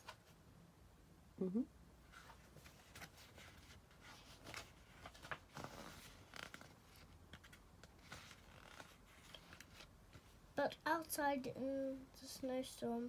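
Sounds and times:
book pages rustling: 2.1 - 10.4.

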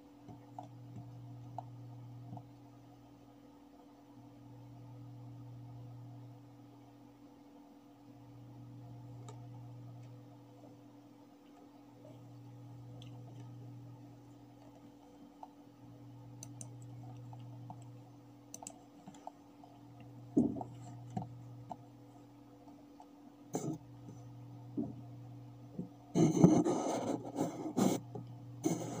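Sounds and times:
steady low hum: 0.0 - 29.0
computer mouse clicks: 16.4 - 19.4
rustling and knocking: 20.3 - 21.8.

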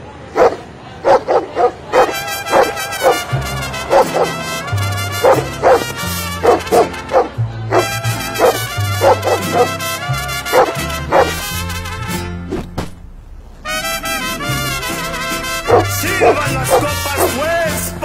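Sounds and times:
dog barking: 0.3 - 11.5, 15.6 - 17.4
background music with bass: 2.3 - 18.0.

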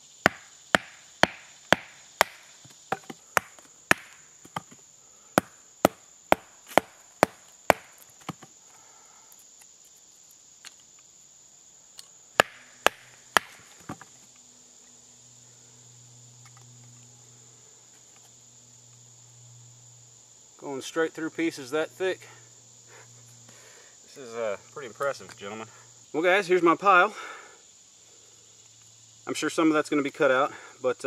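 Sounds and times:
high insect drone: 0.0 - 31.0
baton knocking on knife spine: 5.4 - 8.4.

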